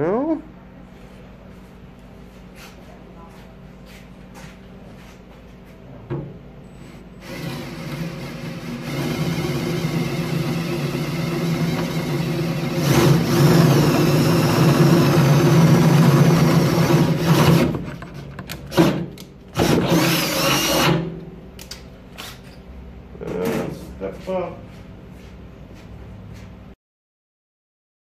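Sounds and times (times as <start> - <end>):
cordless drill drilling metal: 7.2 - 17.8, 19.6 - 21.0.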